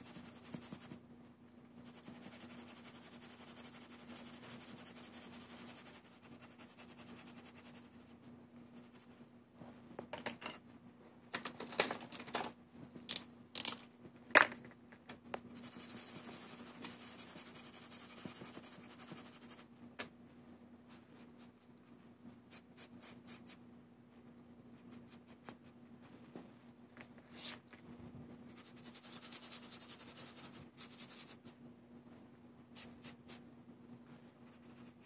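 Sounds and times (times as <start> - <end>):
scratchy stroking on paper: 0.0 - 1.0, 1.8 - 9.2, 15.5 - 19.7, 28.5 - 31.5
clicks and taps of pens: 13.1 - 13.8.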